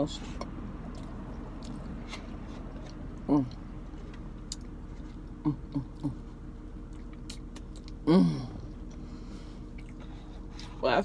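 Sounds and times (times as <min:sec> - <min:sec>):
person chewing cake: 0:00.3 - 0:10.8
person humming mm: 0:05.4 - 0:06.2, 0:08.0 - 0:08.7.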